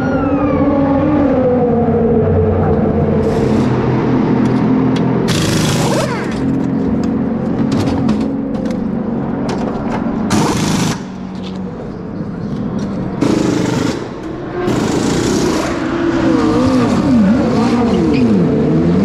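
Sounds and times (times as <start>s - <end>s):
race car engines running: 0.0s - 19.0s
pneumatic wheel guns rattling: 5.3s - 6.6s, 9.5s - 11.6s, 13.2s - 15.8s.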